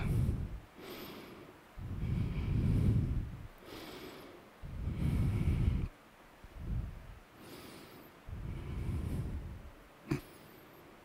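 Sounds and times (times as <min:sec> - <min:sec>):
person breathing into microphone: 0:00.0 - 0:10.8.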